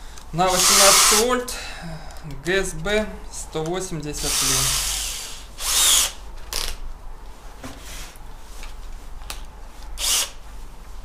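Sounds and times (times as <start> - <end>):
rustles and clicks of handling: 6.4 - 11.0.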